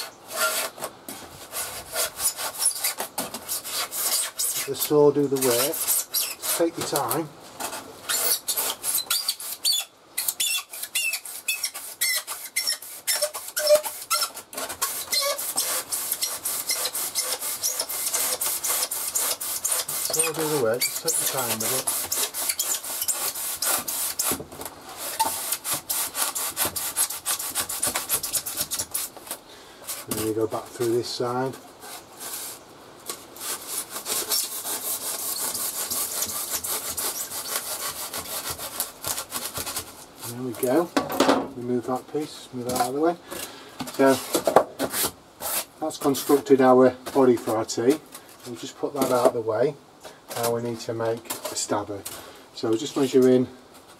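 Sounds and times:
saw rasping through foam: 0.0s - 29.2s, 33.4s - 40.9s
foam squeaking: 1.6s - 29.1s, 33.4s - 40.9s.

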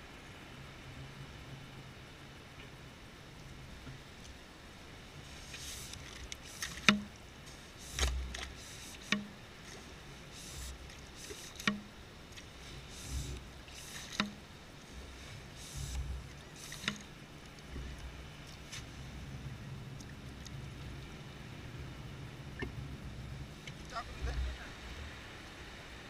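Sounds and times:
hiss and squelching wet sand: 5.1s - 19.2s
pump plunger clicks: 5.6s - 7.2s, 7.8s - 9.4s, 10.4s - 12.0s, 12.9s - 14.4s, 15.6s - 17.7s.

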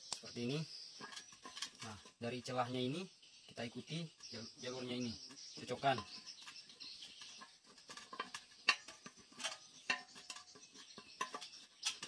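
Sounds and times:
plastic parts clicking and scraping: 1.0s - 2.2s, 5.3s - 12.0s.

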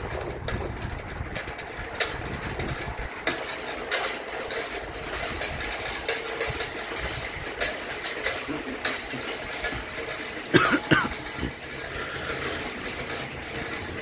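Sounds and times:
wind rumbling on microphone: 0.0s - 3.3s
bicycle tyres rolling on asphalt: 0.0s - 14.0s.

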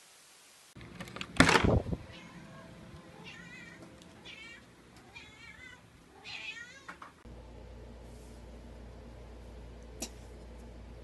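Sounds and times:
cat meowing: 2.1s - 7.0s.

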